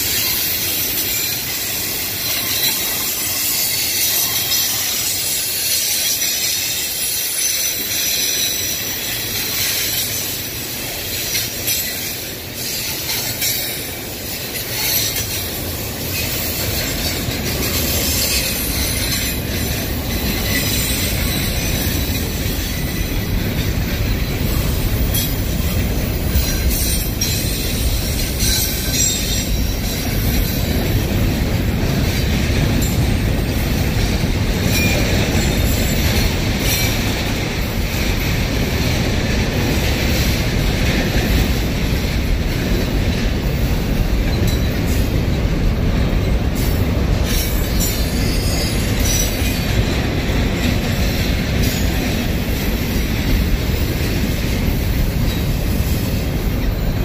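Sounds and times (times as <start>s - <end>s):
wheel squeal: 0.0s - 31.1s, 34.0s - 37.1s, 46.2s - 54.0s
train wheels rumbling on rails: 0.0s - 57.0s.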